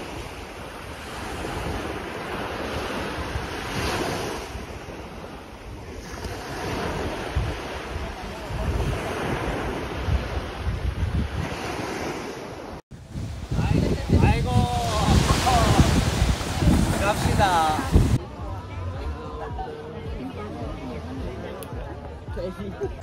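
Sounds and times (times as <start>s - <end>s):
waves breaking on beach: 0.0s - 18.2s
wind buffeting microphone: 0.0s - 18.5s.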